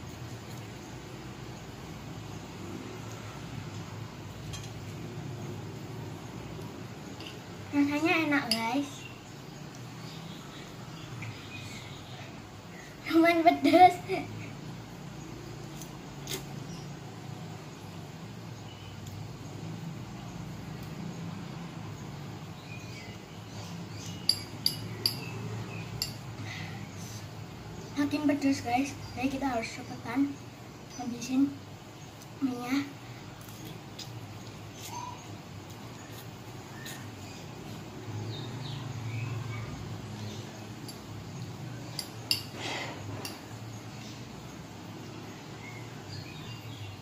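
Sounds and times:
low background hum: 0.0 - 47.0
fork clinking against glass bowl: 24.1 - 25.3, 41.9 - 43.5.

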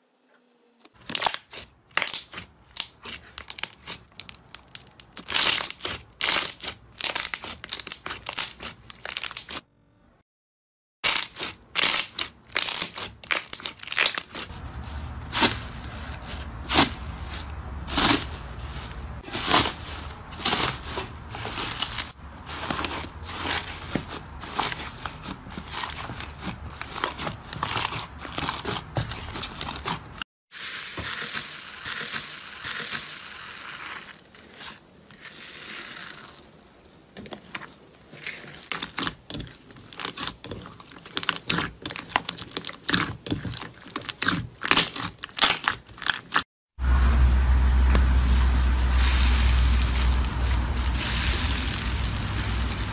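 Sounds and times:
slime popping and crackling: 1.0 - 9.6, 11.0 - 14.6, 38.6 - 46.4, 48.8 - 52.9
slime squishing and crinkling: 1.0 - 9.6, 11.0 - 36.6, 37.3 - 46.4, 47.9 - 52.9.

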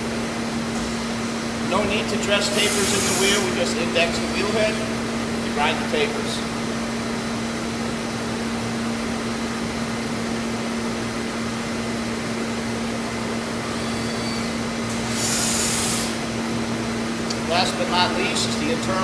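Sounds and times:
grinding machine hum: 0.0 - 8.5
grinding wheel and coolant hiss: 1.1 - 6.2, 13.4 - 16.6.

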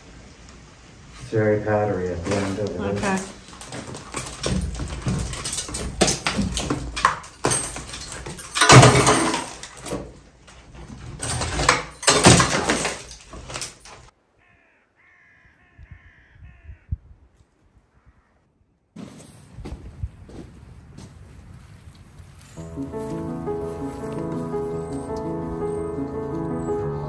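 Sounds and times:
faint crow caws: 14.2 - 18.7.

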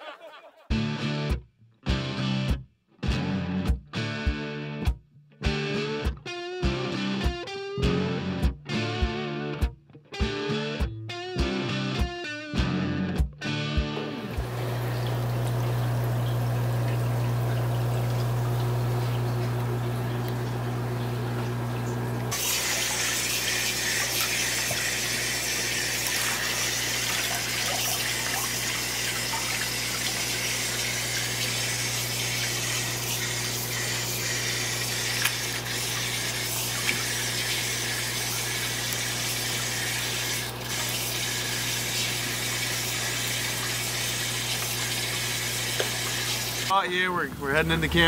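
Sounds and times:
low pump hum: 14.3 - 48.0
water pouring into a tank: 14.4 - 48.0.

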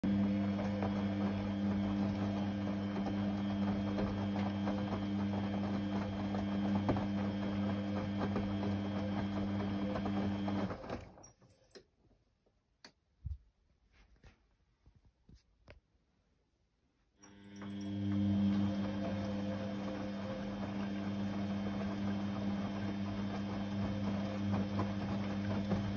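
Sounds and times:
washing machine motor hum: 0.0 - 11.3, 17.2 - 25.9
laundry and water sloshing: 18.2 - 25.9.

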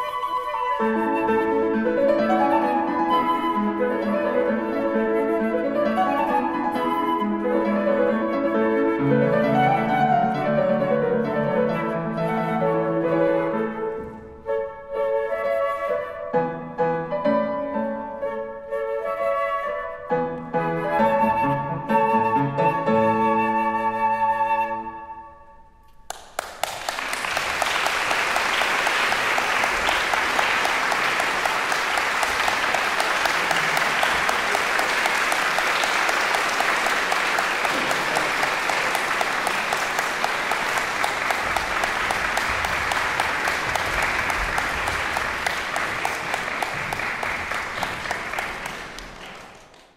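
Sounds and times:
flutes and piano chord: 0.0 - 25.8
audience applause: 26.1 - 49.9.

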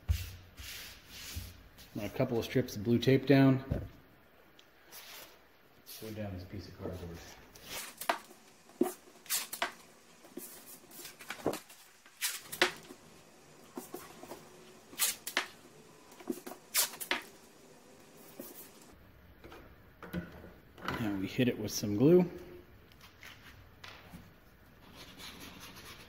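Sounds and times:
tape ripping off roll: 7.6 - 9.8, 10.4 - 12.9, 14.9 - 15.6, 16.2 - 17.3.

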